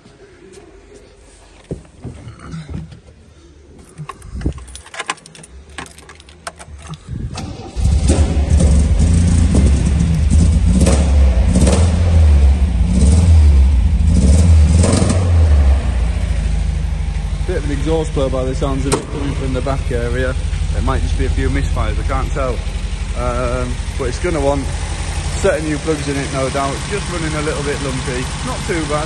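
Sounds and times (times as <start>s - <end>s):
keys rattling in ignition: 3.8s - 7.9s
exhaust blow: 6.7s - 29.0s
car engine starting and revving: 6.8s - 29.0s.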